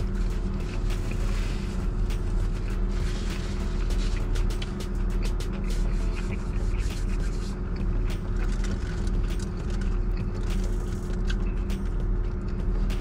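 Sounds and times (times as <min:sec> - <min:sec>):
paper wrapper crinkling: 0:00.0 - 0:04.9, 0:08.2 - 0:11.4
low hum inside car cabin: 0:00.0 - 0:13.0.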